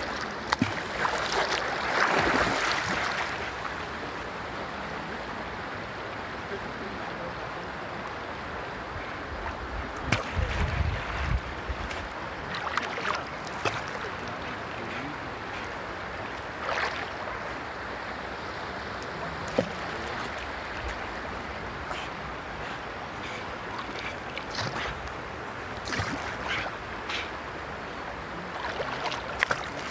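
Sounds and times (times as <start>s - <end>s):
sharp water splashes: 0.0s - 3.5s, 10.0s - 15.1s, 16.6s - 17.3s, 19.4s - 21.0s, 23.7s - 25.0s, 25.7s - 27.3s, 28.4s - 29.9s
river water flowing and lapping: 0.0s - 29.9s.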